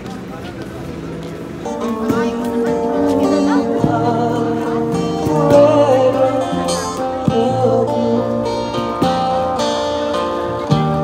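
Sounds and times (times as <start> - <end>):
acoustic guitars strumming: 0.1 - 11.0
person singing: 1.7 - 9.1.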